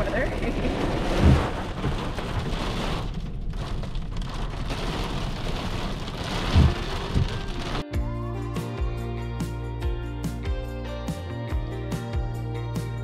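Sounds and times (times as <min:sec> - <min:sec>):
heavy rain on windshield: 0:00.0 - 0:07.8
soft music: 0:06.8 - 0:13.0.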